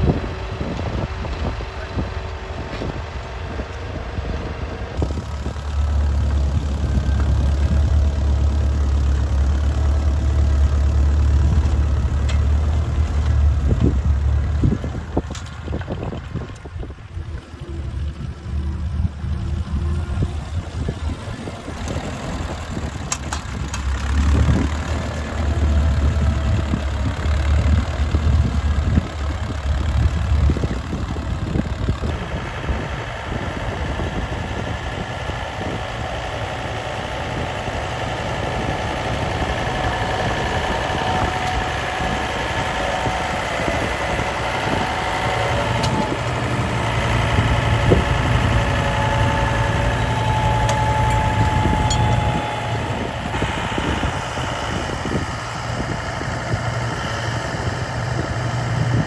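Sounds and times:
tractor engine pulsing beat: 0.0s - 59.0s
tractor engine running steadily: 0.0s - 59.0s.

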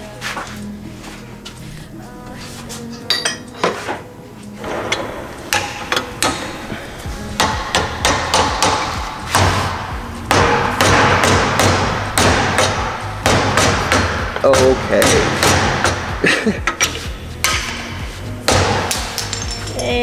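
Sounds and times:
hammer striking metal: 4.6s - 6.7s, 7.3s - 19.9s.

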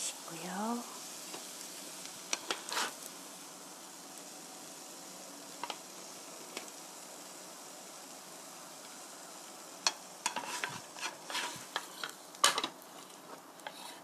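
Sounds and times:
faint steady hiss: 0.0s - 14.0s
spatula clicking and scraping pan: 2.3s - 3.0s, 9.8s - 14.0s.

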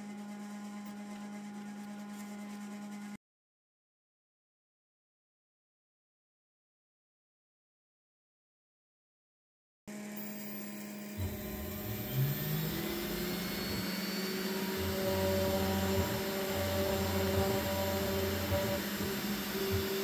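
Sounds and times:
router spindle humming: 9.9s - 20.0s
stepper motors whining: 9.9s - 20.0s.

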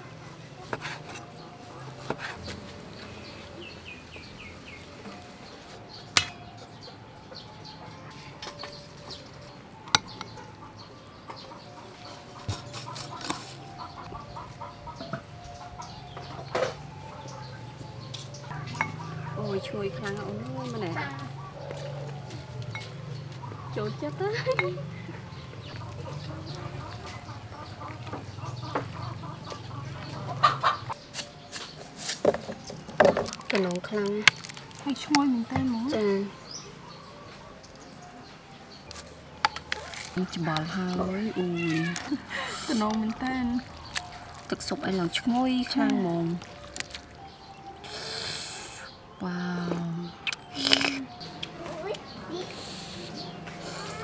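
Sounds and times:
birds chirping: 0.0s - 54.0s
chickens clucking: 6.8s - 34.4s, 35.1s - 49.2s, 50.0s - 54.0s
utensils clinking on pot and bowl: 18.6s - 19.2s.

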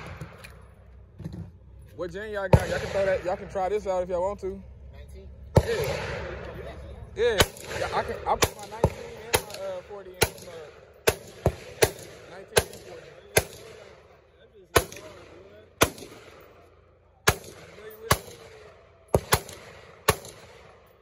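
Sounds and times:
gunshots with short echo: 5.6s - 6.4s, 7.4s - 16.6s, 17.2s - 20.9s.

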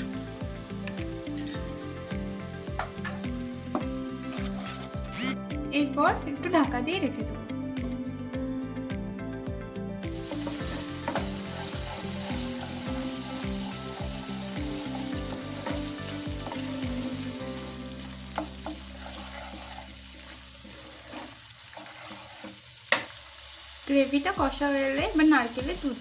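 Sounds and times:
paste sizzling in oil: 0.0s - 5.2s, 10.1s - 26.0s
spatula scraping pan: 4.3s - 5.0s, 10.2s - 17.2s, 18.4s - 23.0s.

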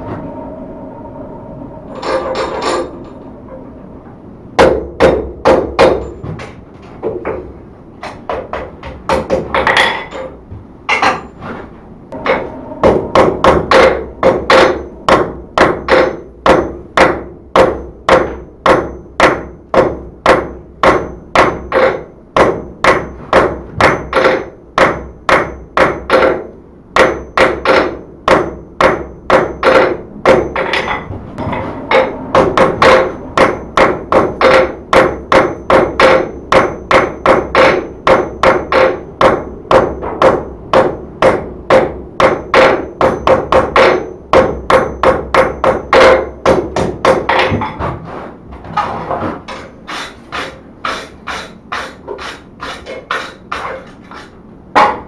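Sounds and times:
hammer striking steel on an anvil: 4.6s - 6.5s, 12.1s - 47.8s, 49.5s - 55.0s.

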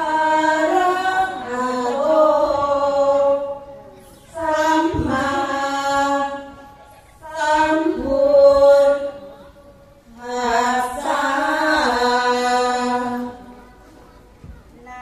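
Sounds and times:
women chanting in unison: 0.0s - 3.6s, 4.3s - 6.6s, 7.2s - 9.4s, 10.1s - 13.5s.

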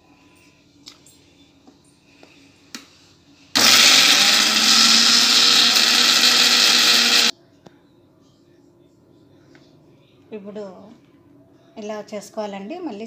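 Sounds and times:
mixer grinder running: 3.6s - 7.3s.

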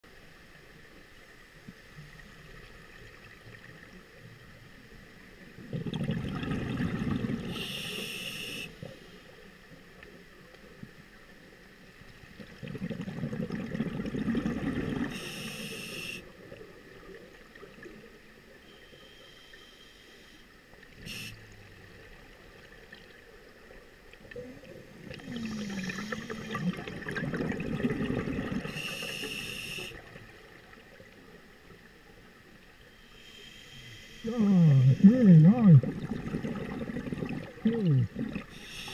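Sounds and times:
quiet water noise: 0.0s - 38.9s
exhaled bubbles gurgling underwater: 5.4s - 9.0s, 12.1s - 18.5s, 21.0s - 31.8s, 34.3s - 38.9s
regulator hiss: 7.5s - 9.3s, 15.1s - 16.4s, 18.7s - 21.5s, 28.6s - 30.2s, 32.9s - 35.6s, 38.5s - 38.9s.

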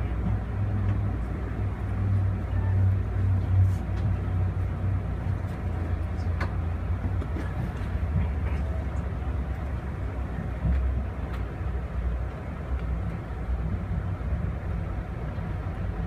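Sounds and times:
train coach rumbling on track: 0.0s - 16.0s.

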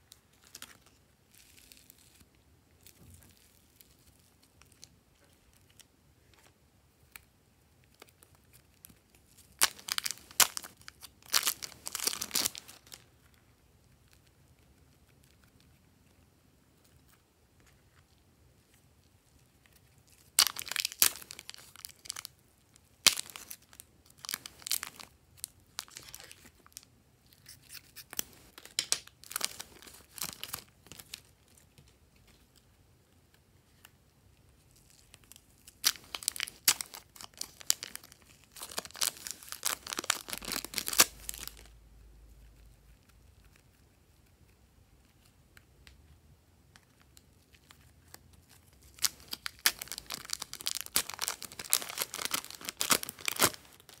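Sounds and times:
plastic bags crinkling: 9.5s - 13.0s, 20.3s - 22.3s, 23.0s - 25.1s, 27.7s - 31.2s, 35.7s - 41.7s, 48.6s - 54.0s.

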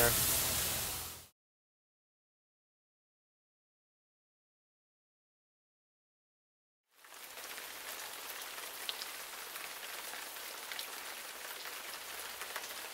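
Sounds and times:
rain falling steadily: 0.0s - 1.3s, 6.9s - 12.9s
sharp raindrop ticks: 7.1s - 12.9s.

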